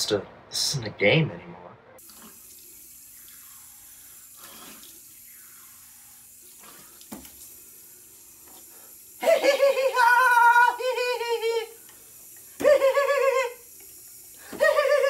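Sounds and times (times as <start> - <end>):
tap running into sink: 7.0 - 7.4
man's wavering vocal cry: 9.2 - 11.8, 12.6 - 13.6.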